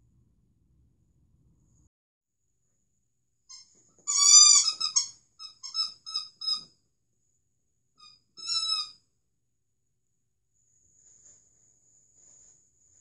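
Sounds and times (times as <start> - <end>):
squeaky dog toy squeaking: 3.5 - 6.7, 8.0 - 9.0.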